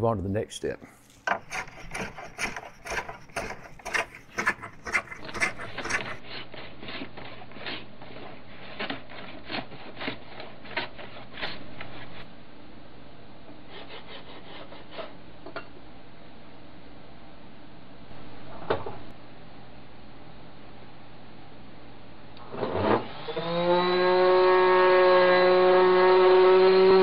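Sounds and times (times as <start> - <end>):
hand tool shaving wood: 1.2 - 12.2.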